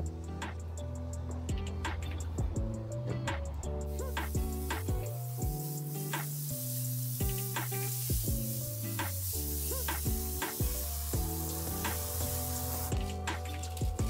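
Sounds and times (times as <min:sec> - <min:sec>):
background music with bass: 0:00.0 - 0:14.0
steady hiss: 0:03.4 - 0:14.0.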